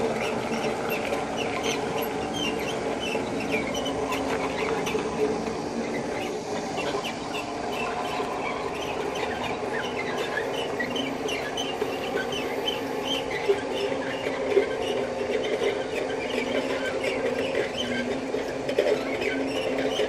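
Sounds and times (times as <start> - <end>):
manure scraper mechanical drone: 0.0 - 20.0
short high squeaks: 5.8 - 18.2.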